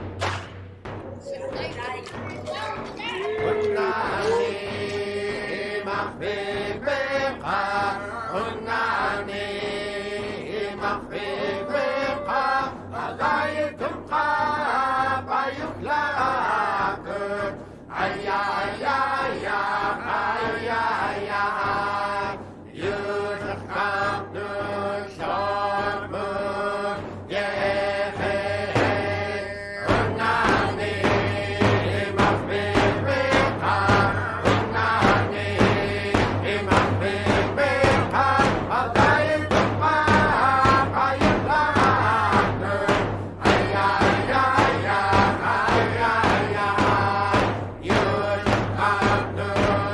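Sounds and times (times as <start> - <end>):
chant-like singing over held note: 3.3 - 13.8.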